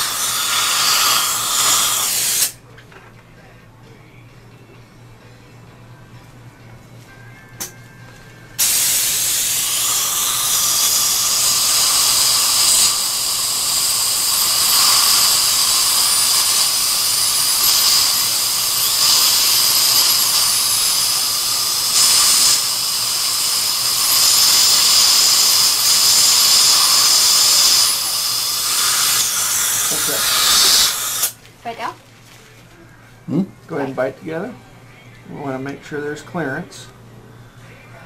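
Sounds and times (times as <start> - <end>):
dental drill whining: 0.0 - 2.6, 8.6 - 31.4.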